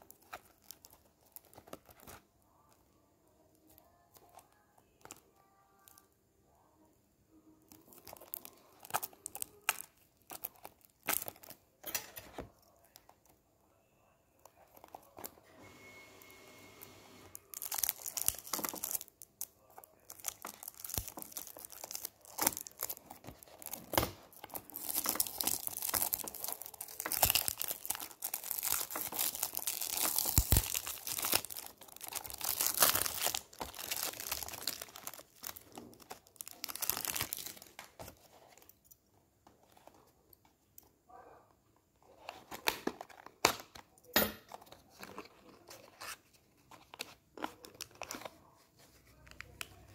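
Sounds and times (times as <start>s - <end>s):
cellophane tearing and crinkling: 0.0s - 2.2s, 3.6s - 6.0s, 7.7s - 13.2s, 14.4s - 15.4s, 17.3s - 38.8s.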